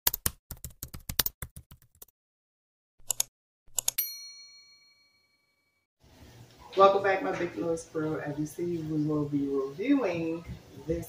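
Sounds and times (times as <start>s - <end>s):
keyboard typing clicks: 0.1s - 2.1s, 3.0s - 4.0s
bell ding: 4.0s - 5.8s.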